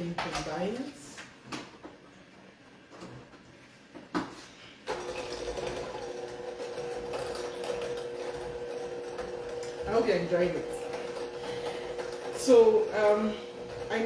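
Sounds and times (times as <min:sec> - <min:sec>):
electric hand mixer humming: 0:04.9 - 0:14.0.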